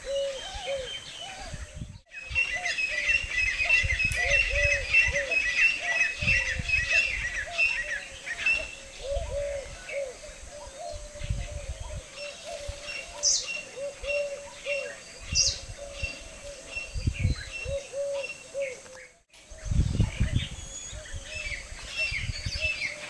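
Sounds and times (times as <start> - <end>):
bird low arched notes: 0.0 - 23.0.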